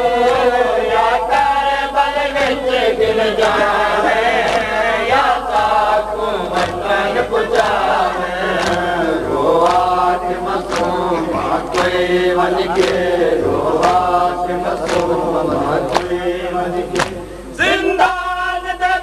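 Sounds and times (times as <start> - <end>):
voices chanting a lament: 0.0 - 19.0
hands slapping on chests: 3.4 - 4.8, 6.5 - 6.9, 8.5 - 9.0, 9.6 - 14.1, 14.8 - 16.2, 16.9 - 17.2.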